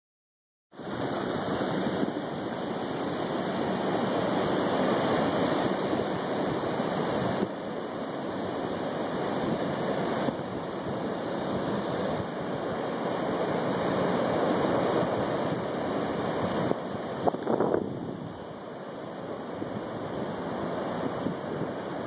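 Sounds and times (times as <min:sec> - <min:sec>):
ocean surf breaking: 0:00.8 - 0:22.0.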